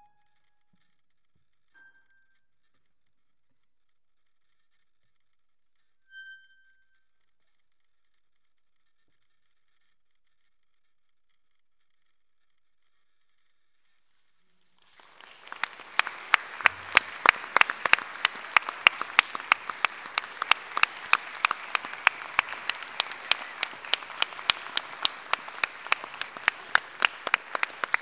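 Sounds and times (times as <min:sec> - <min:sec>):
audience applauding: 0:14.8 - 0:28.0
close loud sharp clapping: 0:14.8 - 0:28.0.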